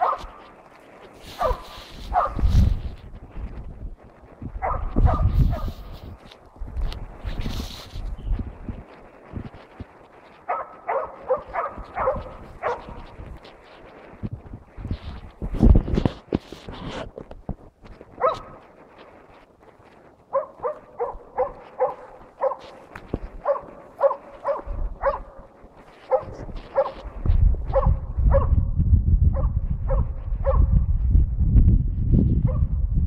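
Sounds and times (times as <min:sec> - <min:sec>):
dog barking: 0:00.0 - 0:00.4, 0:01.3 - 0:02.5, 0:04.6 - 0:05.8, 0:10.5 - 0:13.1, 0:18.2 - 0:18.6, 0:20.3 - 0:22.8, 0:23.4 - 0:27.1, 0:27.7 - 0:28.6, 0:29.3 - 0:30.7, 0:32.4 - 0:32.8
low rumbling noise: 0:00.0 - 0:33.0.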